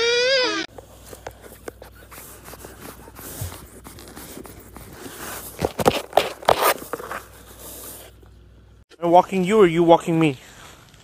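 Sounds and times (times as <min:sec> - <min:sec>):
cardboard tube scraping and rustling: 0:00.7 - 0:08.2.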